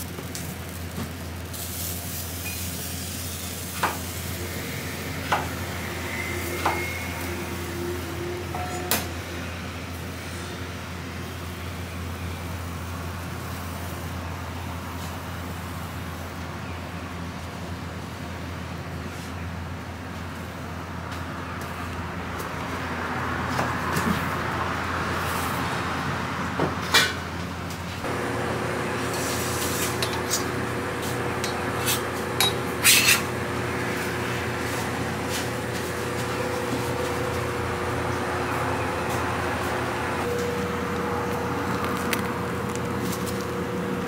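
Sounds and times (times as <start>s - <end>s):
kitchen hum and hiss: 0.0s - 22.0s, 26.6s - 44.0s
steady hiss and hum: 28.0s - 43.7s.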